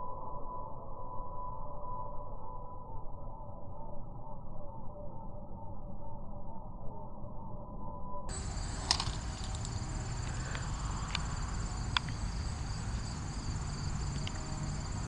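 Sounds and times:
insects chirring: 0:08.3 - 0:15.0
sharp clicks: 0:08.3 - 0:15.0
wind rumble on microphone: 0:08.3 - 0:15.0.

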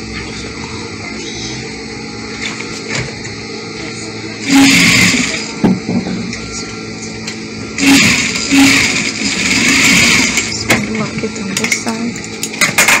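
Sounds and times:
sewing machine stitching: 0:04.4 - 0:05.5, 0:07.8 - 0:10.9.

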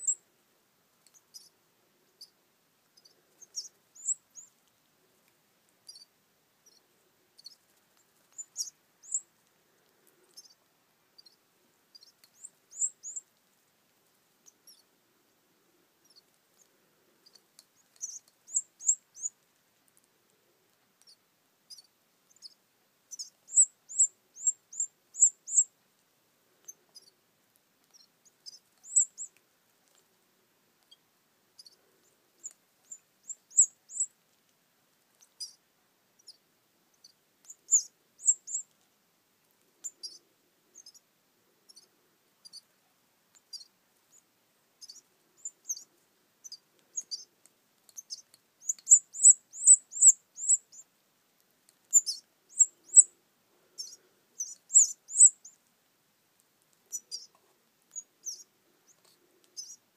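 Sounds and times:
baby canary cheeping: 0:00.0 - 0:00.3, 0:01.0 - 0:04.7, 0:05.8 - 0:09.4, 0:10.2 - 0:13.3, 0:14.4 - 0:14.9, 0:16.0 - 0:19.4, 0:21.0 - 0:25.8, 0:26.6 - 0:27.2, 0:27.8 - 0:30.1, 0:30.8 - 0:34.2, 0:35.2 - 0:35.6, 0:36.2 - 0:38.7, 0:39.8 - 0:41.1, 0:41.7 - 0:42.7, 0:43.3 - 0:47.3, 0:47.9 - 0:50.9, 0:51.8 - 0:53.1, 0:53.7 - 0:55.6, 0:56.9 - 0:59.8.

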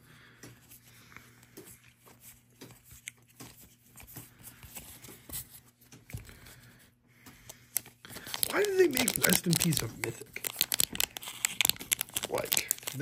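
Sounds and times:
cards sliding and clicking: 0:07.5 - 0:13.0.

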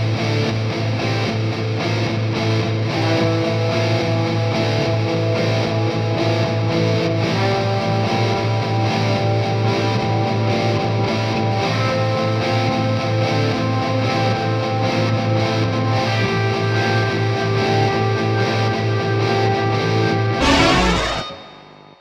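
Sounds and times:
fast low pulse: 0:20.4 - 0:21.8
distorted electric guitar: 0:20.4 - 0:21.9.

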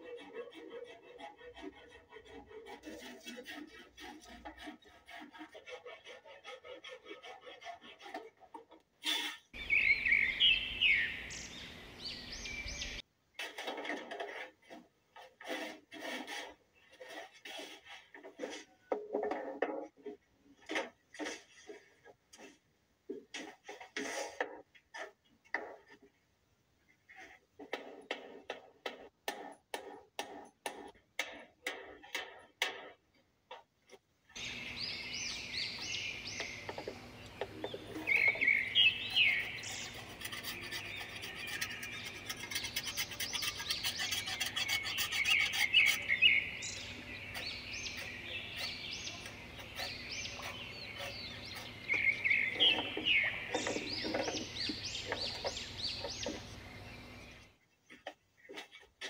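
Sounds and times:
knife shaving wood: 0:00.0 - 0:08.6, 0:13.5 - 0:18.8, 0:36.3 - 0:56.4
songbirds chirping: 0:09.6 - 0:13.0, 0:34.3 - 0:58.9.

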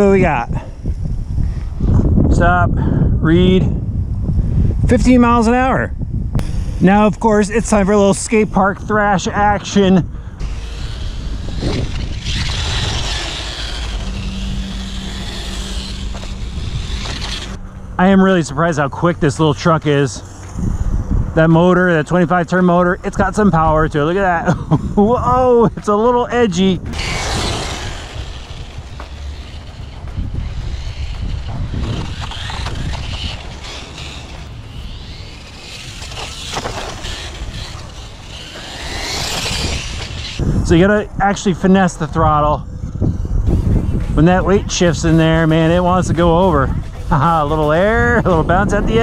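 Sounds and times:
wind rumble on microphone: 0:00.0 - 0:49.0
toy truck electric motor whine: 0:10.4 - 0:17.6, 0:26.9 - 0:40.4
tyre noise on concrete: 0:10.4 - 0:17.6, 0:26.8 - 0:40.7.

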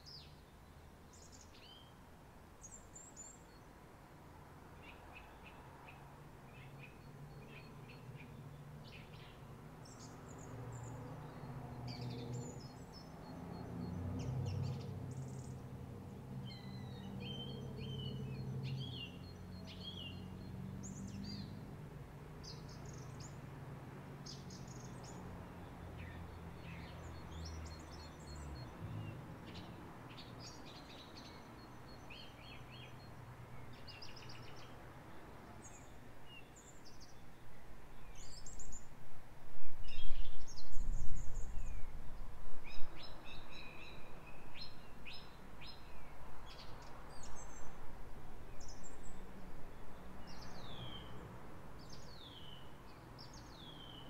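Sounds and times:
wind buffeting microphone: 0:39.6 - 0:43.2.

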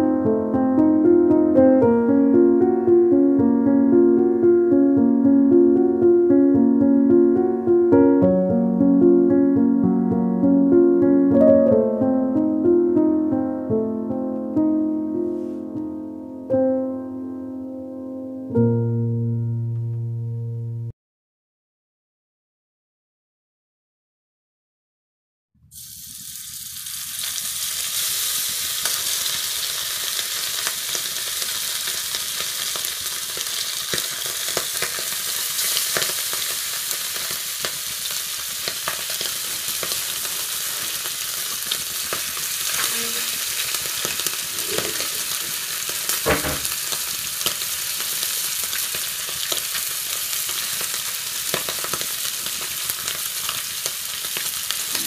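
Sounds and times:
fish sizzling in hot oil: 0:25.7 - 0:55.0.

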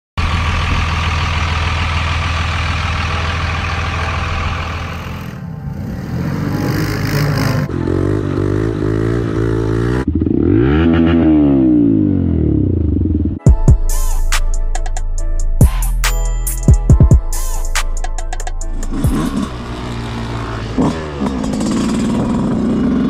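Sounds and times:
off-road engines revving: 0:00.2 - 0:13.2, 0:18.8 - 0:23.0.

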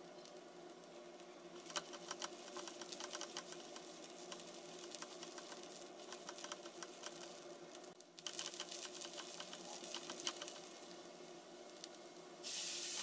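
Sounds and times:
onions sizzling in hot oil: 0:00.0 - 0:13.0
steady hum: 0:00.0 - 0:13.0
spatula stirring in pan: 0:01.6 - 0:11.0.

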